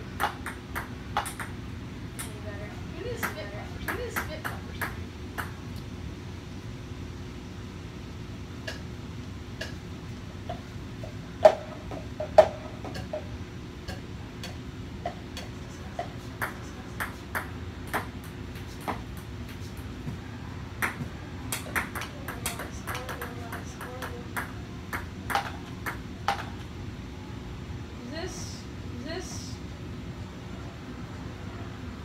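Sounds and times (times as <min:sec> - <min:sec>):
steady low hum: 0:00.0 - 0:32.0
ping pong ball bouncing: 0:00.2 - 0:01.6, 0:02.2 - 0:02.4, 0:03.2 - 0:05.6, 0:11.4 - 0:13.3, 0:13.9 - 0:19.6, 0:20.8 - 0:26.6.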